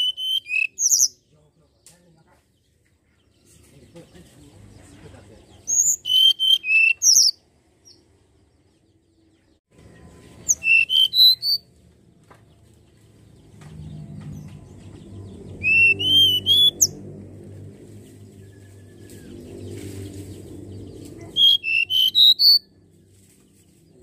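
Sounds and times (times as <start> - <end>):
bird whistling song: 0.0 - 1.2, 5.7 - 7.4, 10.4 - 11.7, 15.5 - 17.0, 21.3 - 22.7.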